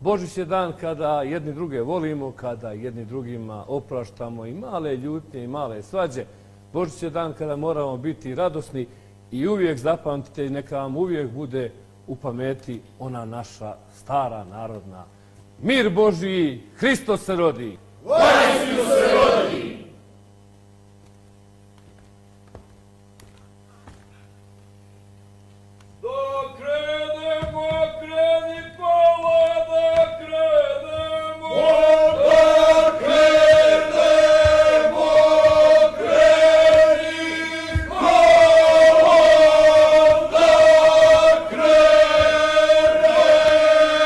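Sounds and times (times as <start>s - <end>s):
low steady hum: 0.0s - 44.0s
group singing folk song: 18.1s - 19.9s, 29.0s - 44.0s
dull thumps: 27.3s - 28.8s, 33.0s - 43.6s.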